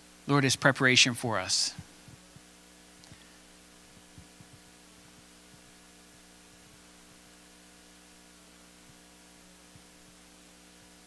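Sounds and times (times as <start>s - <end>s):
faint electrical hum: 0.0s - 11.0s.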